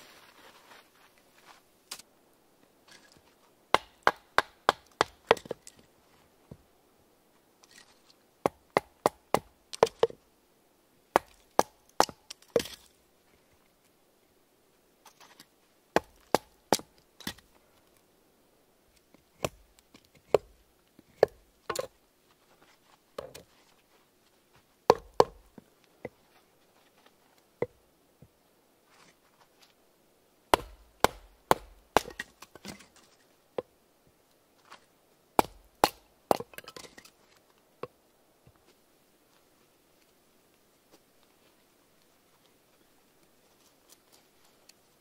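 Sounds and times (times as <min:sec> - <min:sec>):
knife chopping wood: 0:03.7 - 0:05.6, 0:08.4 - 0:10.2, 0:11.1 - 0:12.8, 0:16.0 - 0:17.4, 0:20.3 - 0:20.6, 0:21.2 - 0:21.9, 0:24.9 - 0:25.5, 0:30.5 - 0:32.8, 0:35.4 - 0:36.9.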